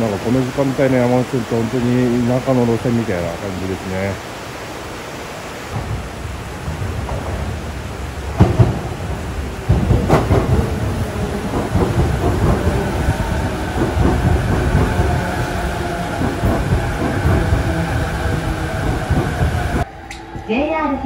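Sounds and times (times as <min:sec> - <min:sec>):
train wheels rumbling over rails: 0:00.0 - 0:04.2, 0:05.2 - 0:20.5
electric train whine: 0:00.0 - 0:21.0.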